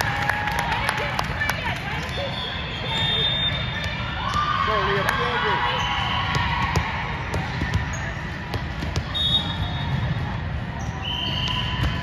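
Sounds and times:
sneakers squeaking on court: 5.7 - 12.0.

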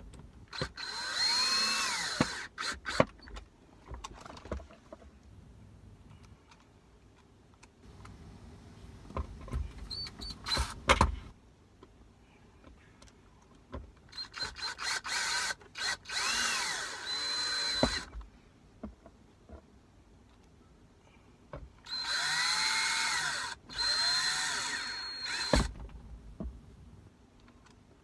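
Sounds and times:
cordless drill driving screws: 0.5 - 3.3, 14.1 - 18.1, 21.8 - 25.7.

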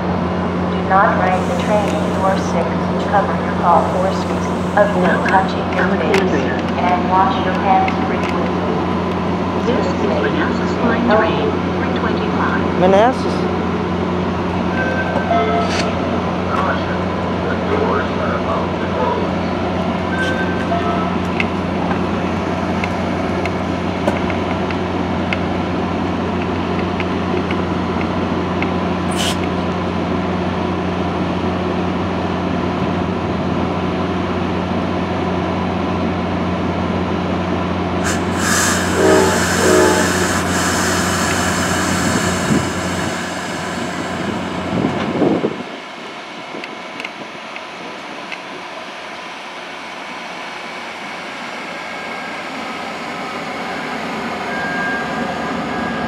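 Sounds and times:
train coaches rumbling on rails: 0.0 - 56.0
train low hum: 0.0 - 56.0
train horn blasts: 38.0 - 42.6
loud air hiss: 38.0 - 44.9.

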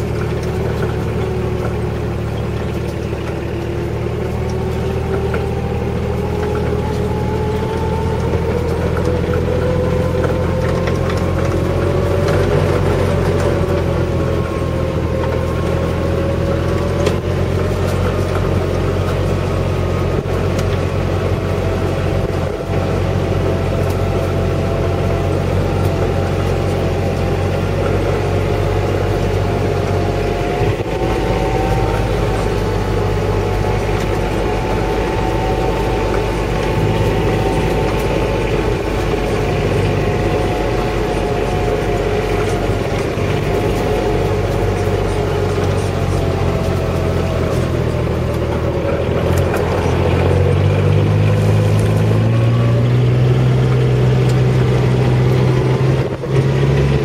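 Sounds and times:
engine whine: 0.0 - 57.0
small vehicle engine running: 0.0 - 57.0.

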